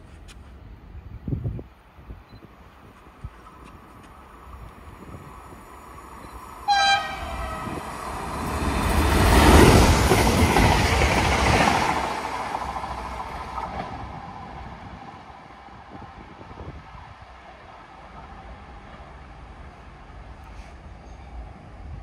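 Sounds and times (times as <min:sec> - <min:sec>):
train wheels rumbling on rails: 0:02.7 - 0:22.0
train horn blast: 0:06.7 - 0:07.8.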